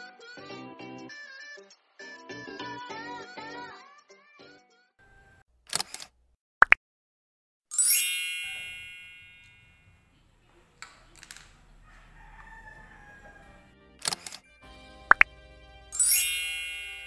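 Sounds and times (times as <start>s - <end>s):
bright ringing call: 7.7s - 9.9s, 16.0s - 17.0s.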